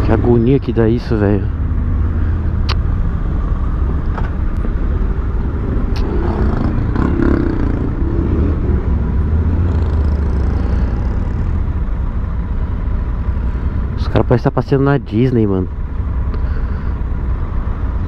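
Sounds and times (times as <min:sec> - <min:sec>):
motorcycle engine rumble: 0:00.0 - 0:14.4.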